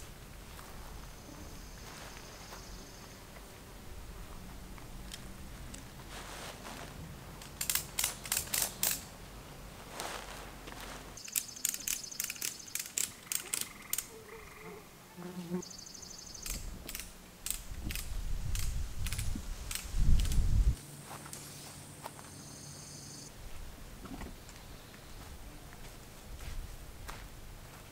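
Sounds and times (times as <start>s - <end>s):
ratchet clicking: 7.4s - 9.1s, 11.2s - 14.1s, 16.4s - 20.5s.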